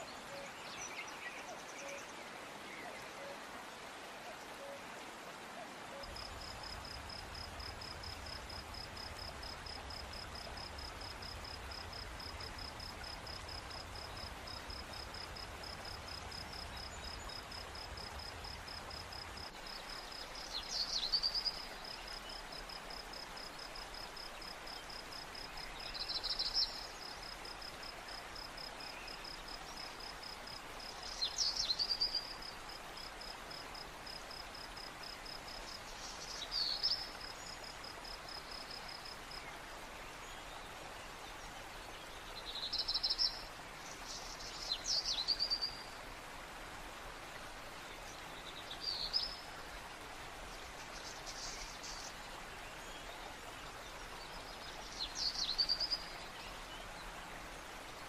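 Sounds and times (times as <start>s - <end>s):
cricket chirping: 6.0s - 39.6s.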